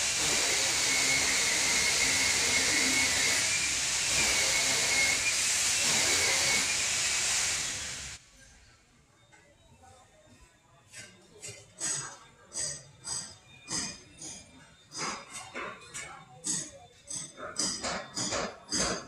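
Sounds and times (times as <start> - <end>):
loud steady hiss: 0.0 - 8.2.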